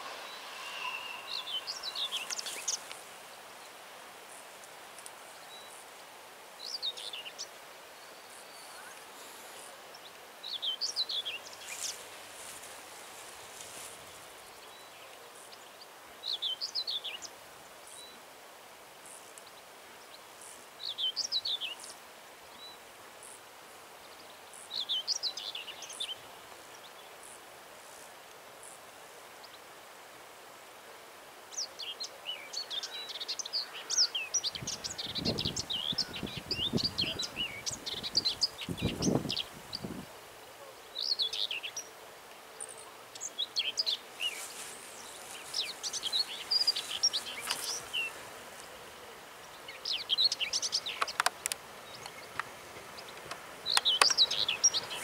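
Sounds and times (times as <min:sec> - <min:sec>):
songbird singing high descending phrase: 0:00.0 - 0:02.8
birds chirping: 0:00.0 - 0:03.5, 0:31.8 - 0:40.0, 0:42.7 - 0:55.0
faint outdoor hiss: 0:00.0 - 0:55.0.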